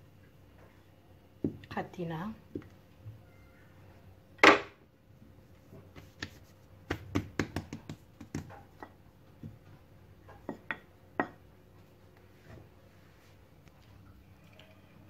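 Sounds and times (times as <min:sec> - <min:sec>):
rolling pin tapping on worktop: 0:06.9 - 0:08.9.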